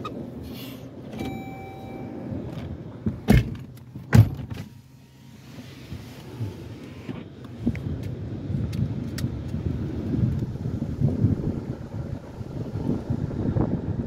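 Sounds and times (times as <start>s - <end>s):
engine and road rumble: 0.0s - 14.0s
brief high tone: 1.2s - 2.3s.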